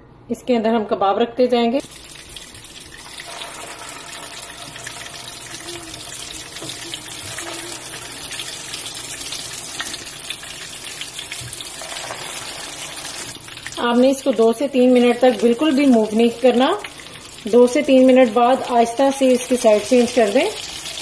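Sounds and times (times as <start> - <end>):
meat sizzling in oil: 1.8 - 21.0.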